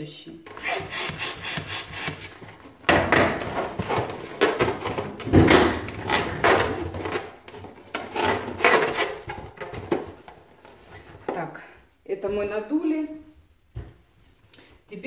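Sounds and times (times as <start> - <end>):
balloons rubbing and squeaking: 0.5 - 2.4.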